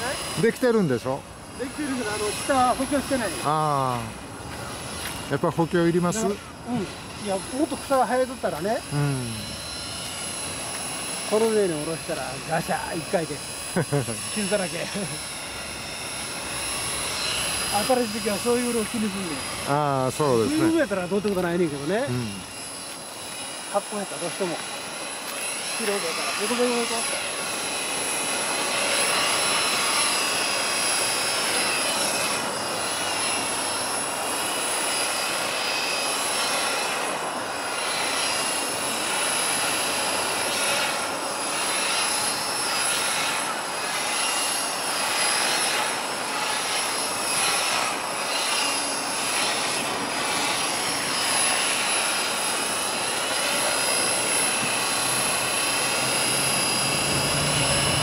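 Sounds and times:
model helicopter whine: 0:00.0 - 0:58.0.

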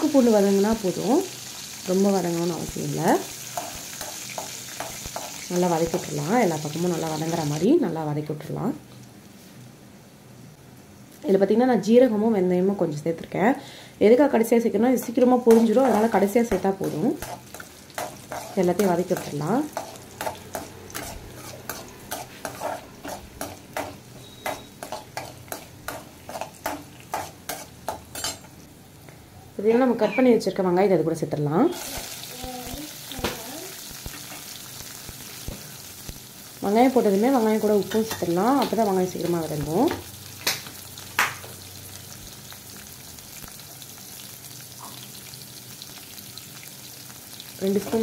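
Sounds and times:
faint sizzle of frying oil: 0:00.0 - 0:48.0
metal spatula scraping a pan: 0:15.5 - 0:16.2, 0:16.8 - 0:28.5.

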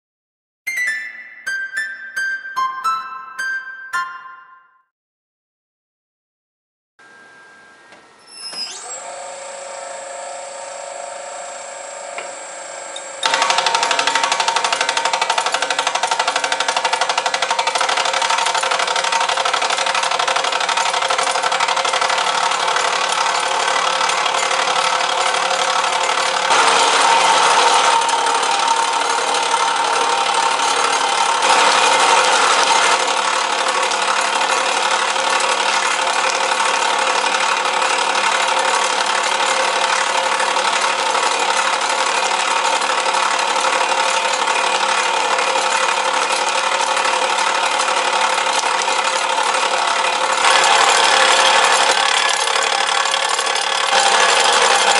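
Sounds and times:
electric motor whining and humming: 0:07.9 - 0:54.9
cable stripper rattling: 0:13.2 - 0:54.9.

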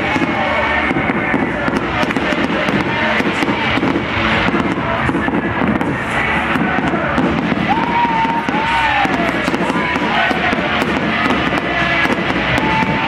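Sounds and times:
background music: 0:00.0 - 0:13.0
dense firework crackling: 0:00.0 - 0:13.0
firework shells bursting: 0:00.0 - 0:13.0.

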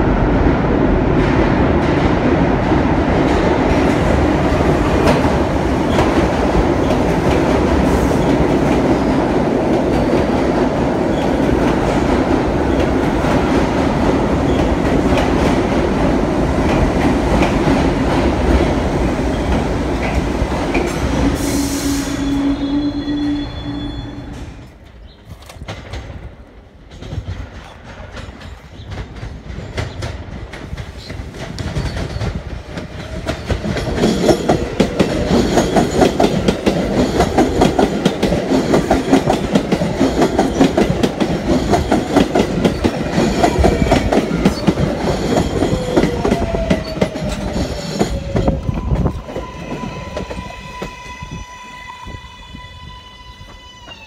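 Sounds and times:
train wheels clattering over rail joints: 0:24.4 - 0:51.0.

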